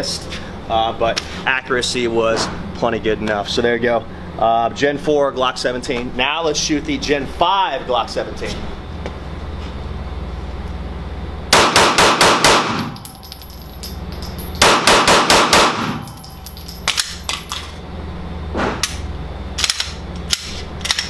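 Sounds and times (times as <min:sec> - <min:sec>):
pistol shots: 0:11.5 - 0:13.0, 0:14.6 - 0:16.1
light metallic clicks and clinks: 0:13.0 - 0:14.6, 0:16.0 - 0:17.8.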